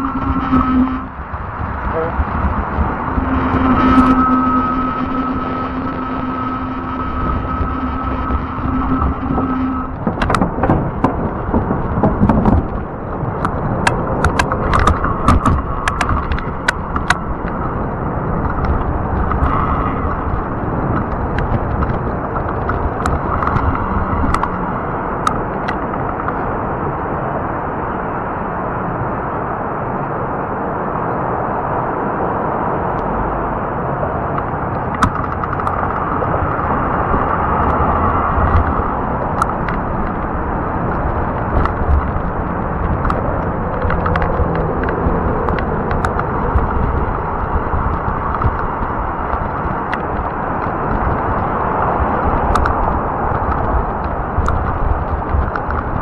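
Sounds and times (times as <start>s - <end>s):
steady motor whine: 0.0s - 26.4s
sharp clicks and rattles: 0.0s - 26.5s, 34.3s - 56.0s
tire rolling noise: 0.0s - 56.0s
wind buffeting microphone: 0.0s - 56.0s.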